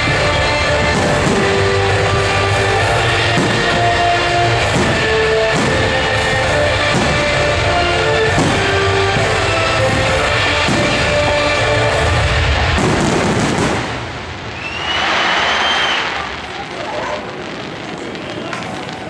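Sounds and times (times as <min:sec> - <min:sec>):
loud rock music with guitar and drums: 0:00.0 - 0:13.4.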